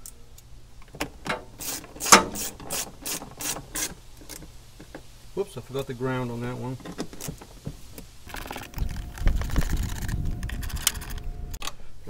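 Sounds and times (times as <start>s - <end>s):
socket tool ratcheting screws: 1.3s - 4.5s.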